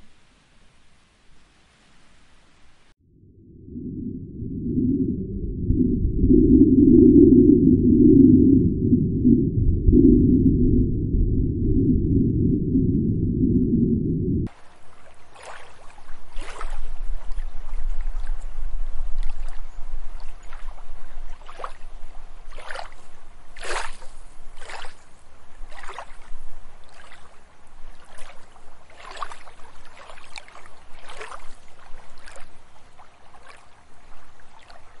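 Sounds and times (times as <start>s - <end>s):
faint steady hiss: 0.0s - 3.0s
low hum: 2.6s - 15.0s
water lapping and sloshing: 14.5s - 35.0s.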